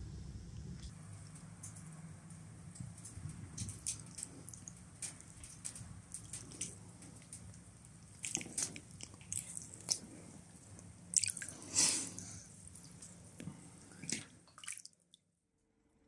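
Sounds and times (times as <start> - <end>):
water dripping and lapping: 0.9 - 15.3
small splashes: 3.0 - 15.3
water sloshing: 3.6 - 15.0.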